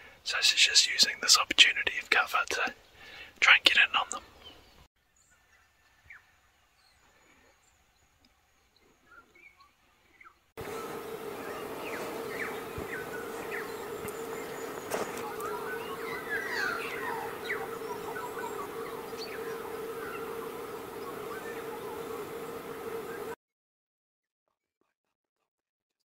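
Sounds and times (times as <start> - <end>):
birds chirping and whistling: 9.1 - 23.4
steady hum and hiss: 10.6 - 23.4.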